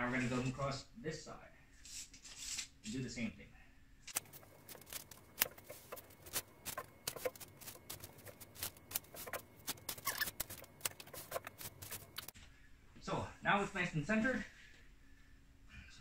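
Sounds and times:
hand rustling felt: 4.2s - 12.3s.

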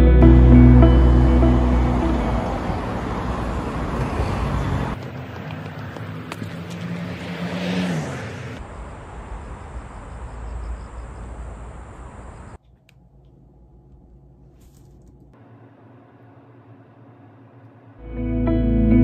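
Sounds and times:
vehicle passing: 0.0s - 12.6s
traffic hum: 0.0s - 18.0s.

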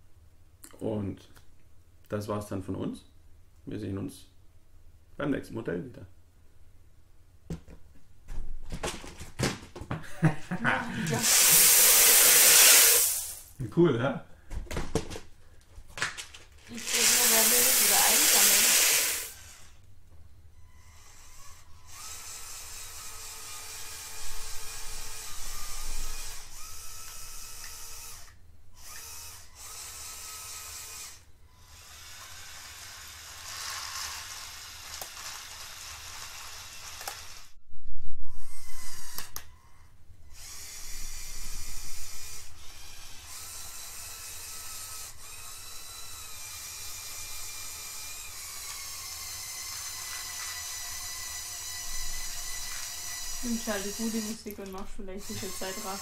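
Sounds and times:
toy electric motors whining: 10.9s - 13.5s, 16.6s - 19.8s, 20.6s - 37.6s, 38.3s - 56.0s
loud burst: 11.0s - 13.5s, 16.8s - 19.4s.

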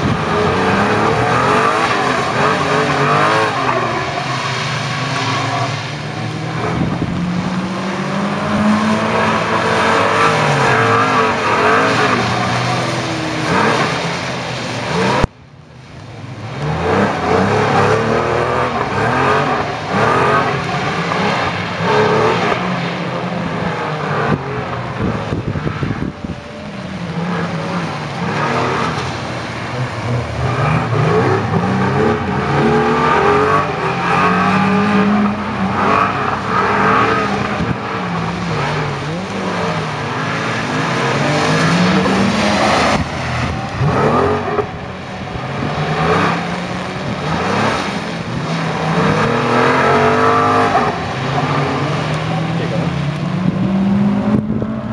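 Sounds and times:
tyres hissing through water: 0.0s - 25.6s
car engine revving: 0.0s - 54.9s.

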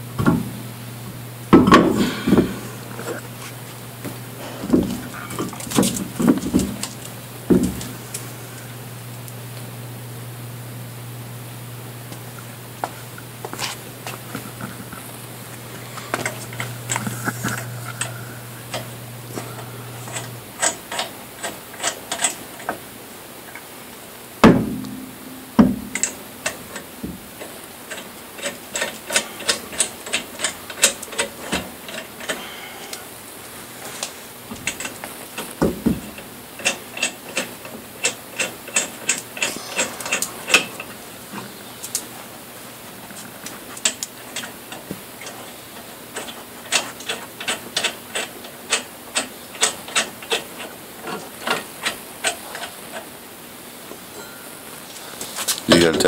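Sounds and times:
heavier metal knocks: 7.5s - 7.8s, 24.4s - 26.0s.

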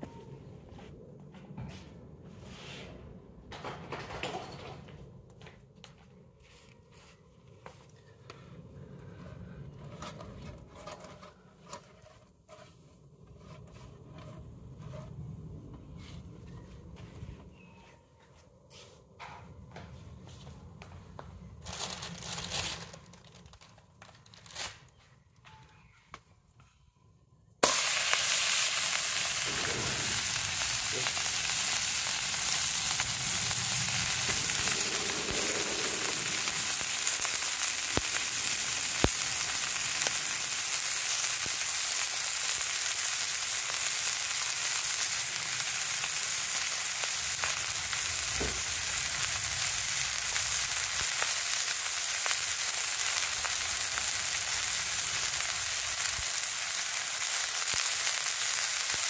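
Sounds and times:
patties sizzling in a pan: 27.6s - 59.0s.

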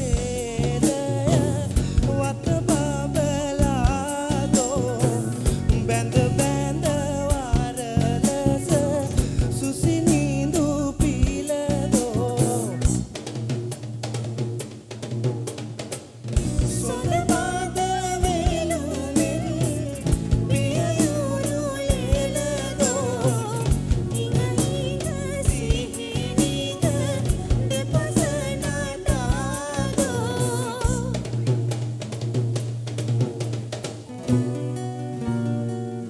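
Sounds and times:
man singing: 0.0s - 13.1s, 16.4s - 31.3s
hand drum beating fast rhythms: 0.0s - 35.7s.

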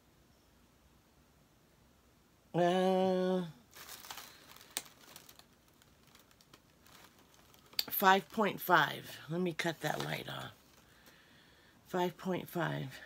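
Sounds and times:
woman humming: 2.6s - 3.6s
packaging crinkling and rustling: 3.7s - 8.7s, 9.5s - 11.2s.

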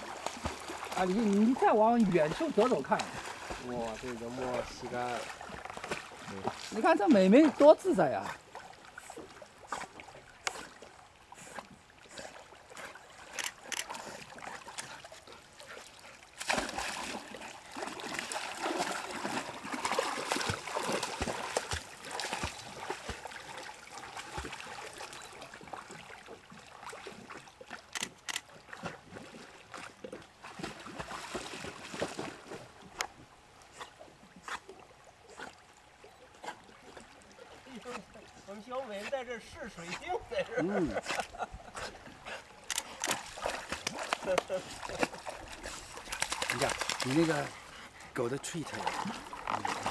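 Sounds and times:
dog splashing in water: 0.0s - 11.0s, 12.3s - 32.8s, 42.0s - 47.8s, 48.6s - 49.9s.

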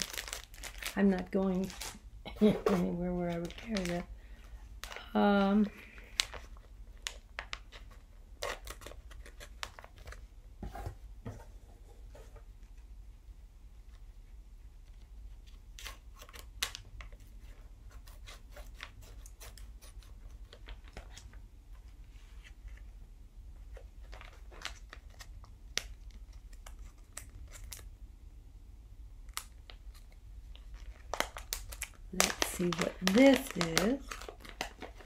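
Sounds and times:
low steady hum: 0.0s - 35.0s
packaging rustling and clicking: 2.6s - 4.1s, 29.4s - 35.0s.

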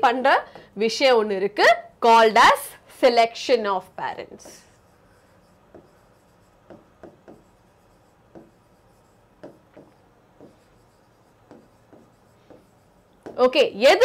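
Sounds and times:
stylus tapping and scratching: 4.4s - 14.0s.

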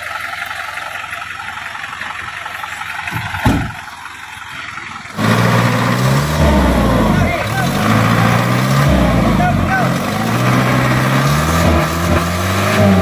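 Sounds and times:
diesel truck engine revving: 0.0s - 13.0s
thump: 3.1s - 3.8s.

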